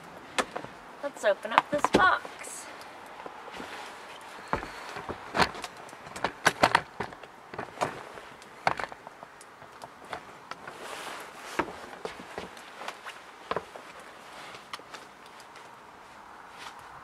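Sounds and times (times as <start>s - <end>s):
handling clicks and knocks: 0.0s - 0.9s, 3.0s - 10.8s, 11.5s - 15.8s
rustling: 0.0s - 17.0s.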